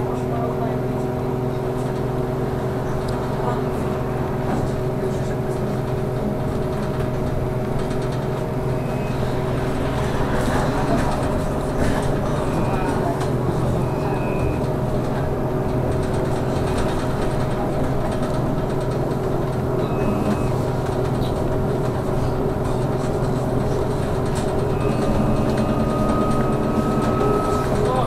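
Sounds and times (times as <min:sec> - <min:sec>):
road noise: 0:00.0 - 0:28.0.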